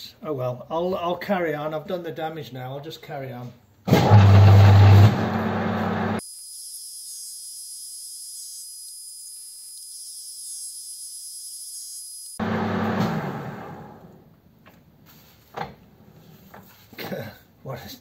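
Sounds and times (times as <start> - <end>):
thin high-pitched whine with hiss: 6.2 - 12.4.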